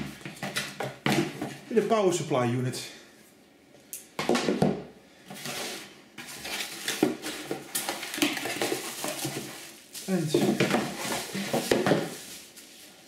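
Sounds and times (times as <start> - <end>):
cardboard box scraping and rustling: 5.4 - 13.0.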